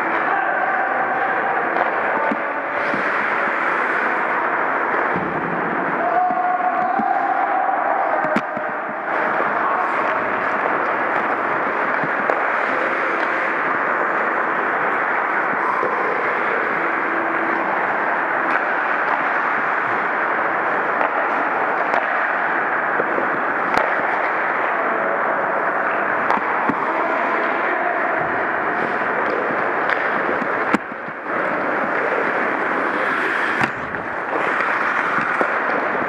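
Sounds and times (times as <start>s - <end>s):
hockey sticks and puck clacking: 0.0s - 36.0s
skates rushing on ice: 0.0s - 36.0s.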